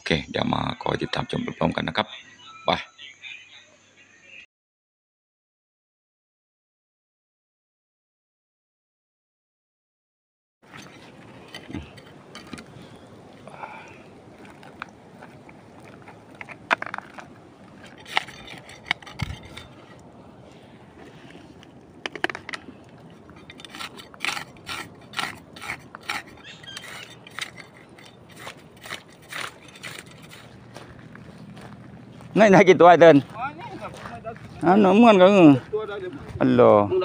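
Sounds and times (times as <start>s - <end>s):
footsteps in wet mud: 10.6s - 36.9s.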